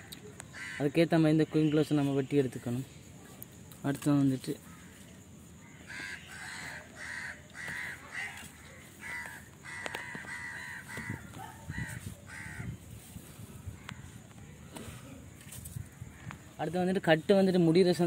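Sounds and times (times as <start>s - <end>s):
crow cawing: 0.5s - 1.0s, 4.6s - 5.0s, 5.6s - 12.8s, 15.8s - 16.5s.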